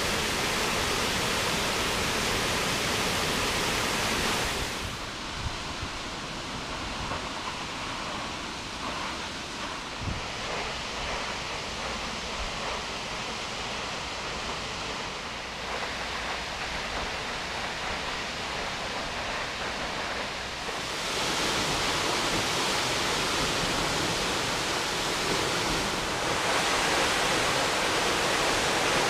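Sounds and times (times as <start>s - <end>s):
waterfall rushing: 0.0s - 8.0s, 14.4s - 29.0s.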